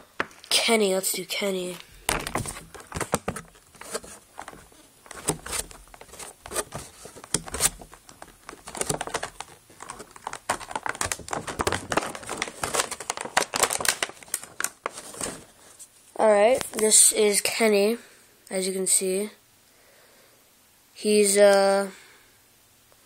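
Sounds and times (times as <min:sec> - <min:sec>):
plastic packaging crinkling: 0:01.6 - 0:15.8.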